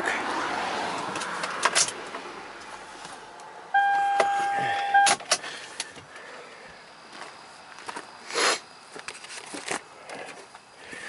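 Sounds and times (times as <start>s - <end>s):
dashboard warning chime: 3.7s - 5.2s
keys clicking in ignition: 3.8s - 5.4s.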